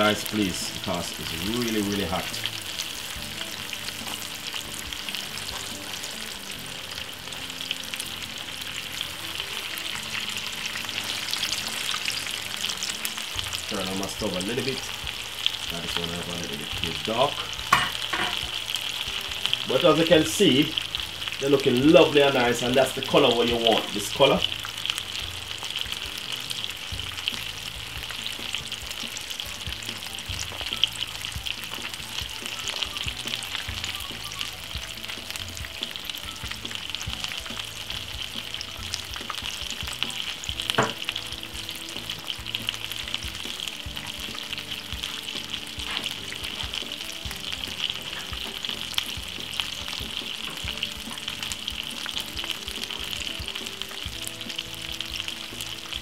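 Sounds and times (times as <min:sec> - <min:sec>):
fish sizzling in oil: 0:00.0 - 0:56.0.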